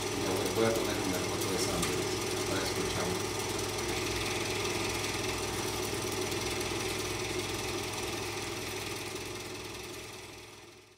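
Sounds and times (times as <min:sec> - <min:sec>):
small motor whirring: 0:00.0 - 0:10.9.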